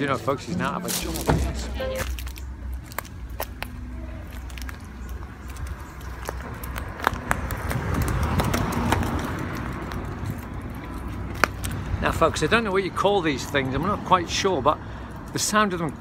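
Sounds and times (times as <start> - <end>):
footsteps crunching nuts and pods: 0.0 - 11.8.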